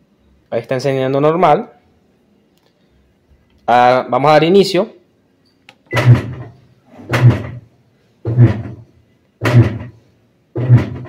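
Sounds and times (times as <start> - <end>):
washing machine agitator clunking: 5.9 - 7.6.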